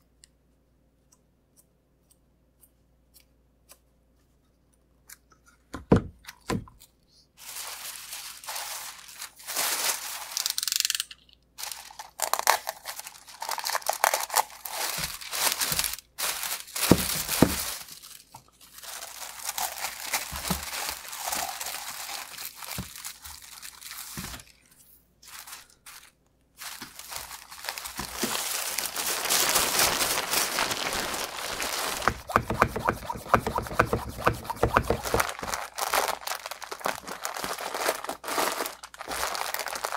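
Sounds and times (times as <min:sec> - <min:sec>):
plastic film crinkling: 0:07.4 - 0:11.0, 0:11.6 - 0:39.9.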